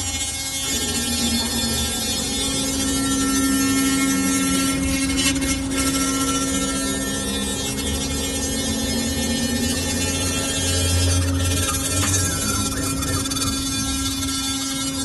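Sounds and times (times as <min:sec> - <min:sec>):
router spindle running: 0:00.0 - 0:15.0.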